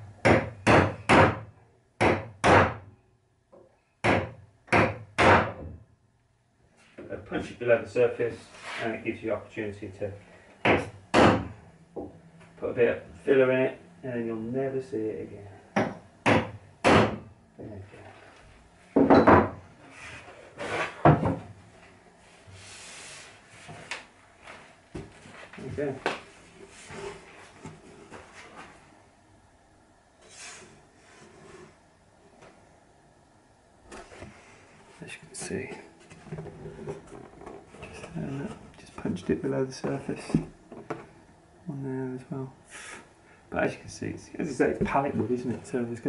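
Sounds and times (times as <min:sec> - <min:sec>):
hammer striking nail punch: 0:15.8 - 0:17.2
wood knocking on workbench: 0:19.0 - 0:19.6, 0:21.0 - 0:21.5
faint rubbing: 0:22.2 - 0:23.8.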